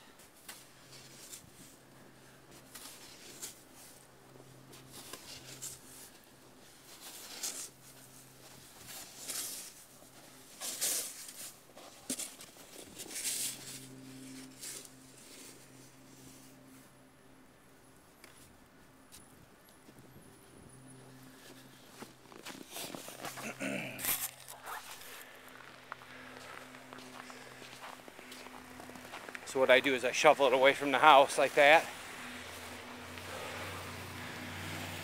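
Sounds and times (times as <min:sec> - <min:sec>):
footsteps crunching in snow: 0:00.5 - 0:17.0, 0:19.1 - 0:34.5
snow shovel scraping snow: 0:02.6 - 0:04.0, 0:04.7 - 0:16.8, 0:21.4 - 0:25.4.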